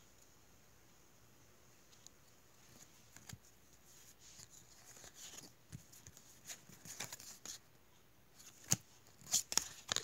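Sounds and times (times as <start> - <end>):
trading cards rustling and clicking: 2.7 - 7.7, 8.4 - 10.0.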